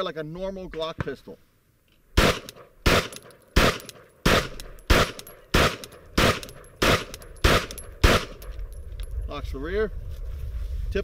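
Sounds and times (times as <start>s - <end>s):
pistol shots: 2.2s - 8.8s.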